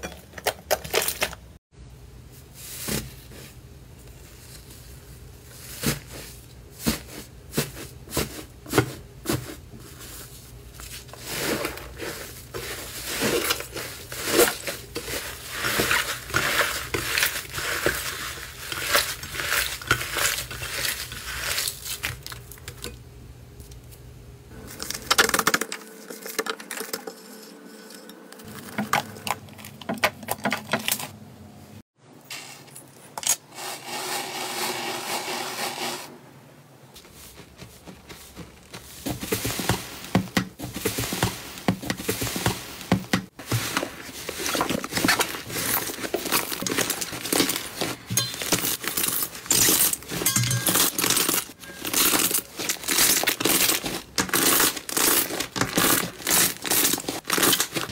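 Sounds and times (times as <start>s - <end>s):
crunchy slime crackling and tearing: 50.9s - 57.9s.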